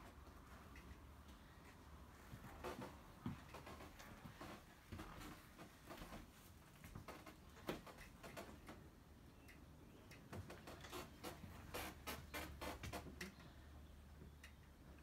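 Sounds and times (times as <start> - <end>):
small clicks and knocks: 2.4 - 13.6.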